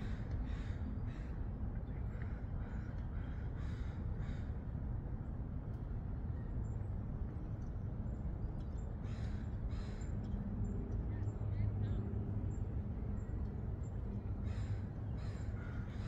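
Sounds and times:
crows cawing: 0:00.0 - 0:01.3, 0:03.2 - 0:04.5, 0:14.4 - 0:16.0
low background rumble: 0:00.0 - 0:16.0.

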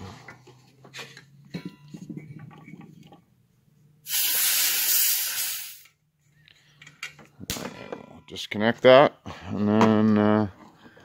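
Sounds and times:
compressed gas hissing: 0:04.0 - 0:05.9.

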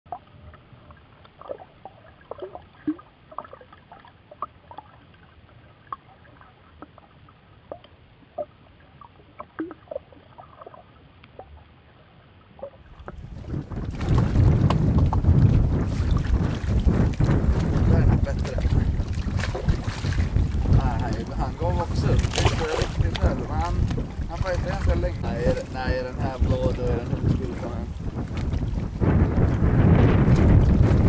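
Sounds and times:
boat noise: 0:00.1 - 0:31.0
wind buffeting: 0:12.9 - 0:31.0.

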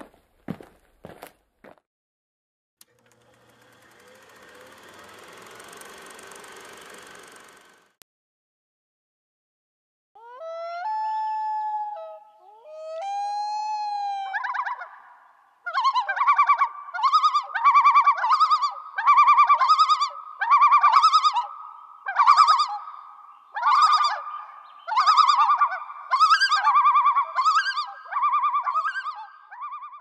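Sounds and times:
loon calling: 0:10.2 - 0:30.0.

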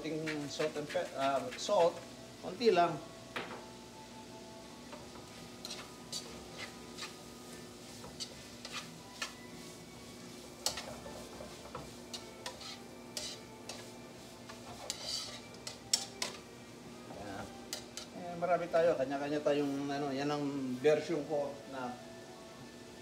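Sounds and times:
food sizzling faintly: 0:00.0 - 0:03.0
metal tongs clicking on skillet: 0:14.9 - 0:16.4.

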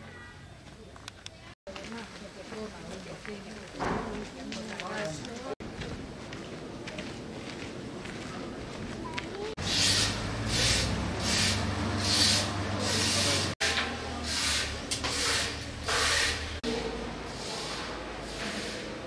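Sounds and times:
footsteps on gravel: 0:01.7 - 0:09.6.

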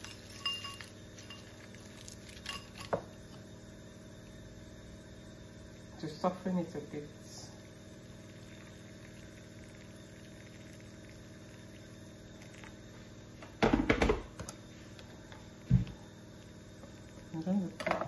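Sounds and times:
water pouring into bowl: 0:07.6 - 0:12.8.

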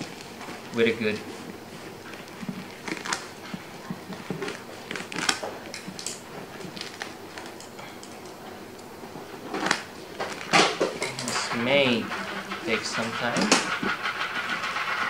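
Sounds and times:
plastic crinkling: 0:00.0 - 0:11.5
tape and plastic tearing: 0:04.4 - 0:07.7, 0:09.5 - 0:11.4.

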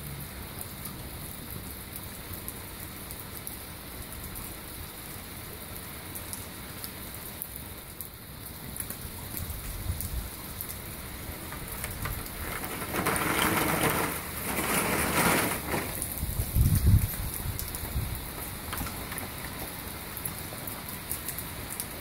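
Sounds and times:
heavy rain on paving: 0:00.0 - 0:22.0.

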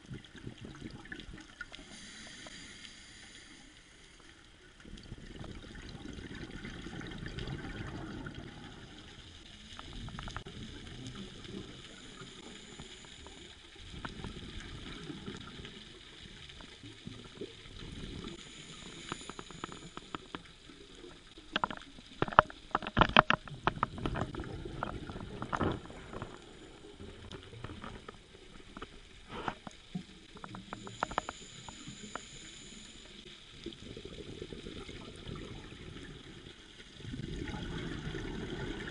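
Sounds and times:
regulator bubbles gurgling underwater: 0:00.0 - 0:38.9
sharp clicks and knocks: 0:21.5 - 0:26.4.

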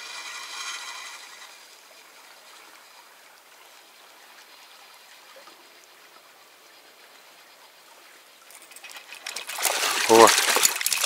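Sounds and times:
river current rushing: 0:00.0 - 0:02.2, 0:09.2 - 0:11.0.

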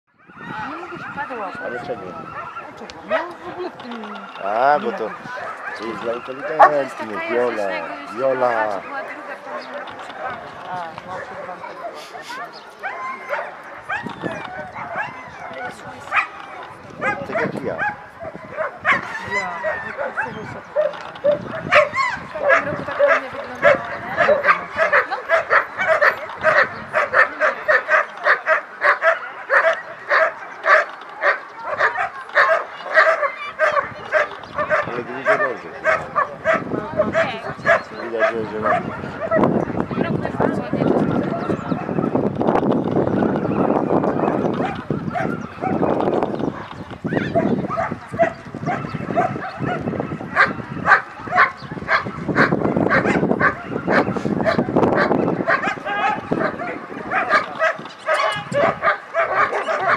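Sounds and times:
crowd murmur: 0:00.2 - 0:59.9
dog barking: 0:04.5 - 0:07.4, 0:11.6 - 0:40.1, 0:43.2 - 0:59.9
dog barking sharply: 0:47.7 - 0:59.9.

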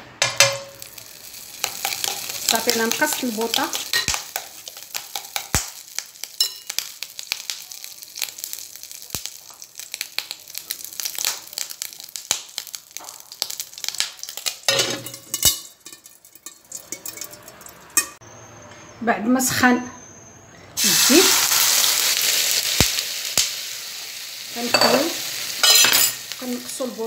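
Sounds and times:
hot oil crackling in a pan: 0:00.2 - 0:18.2, 0:20.8 - 0:27.0
steel lid clattering on pan: 0:14.7 - 0:18.2.

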